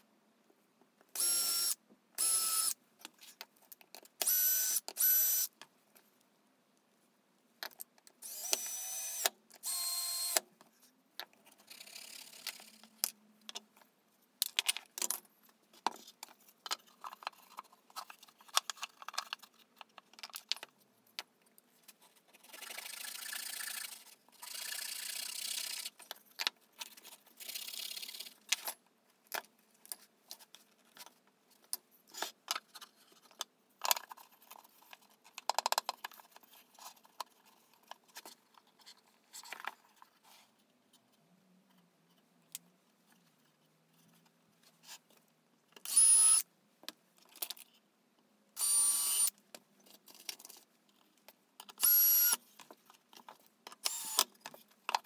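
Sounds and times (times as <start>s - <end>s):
cordless drill whining: 1.2s - 2.8s, 4.2s - 5.5s, 8.2s - 10.4s, 45.9s - 46.4s, 48.6s - 49.3s, 51.8s - 52.4s, 53.9s - 54.2s.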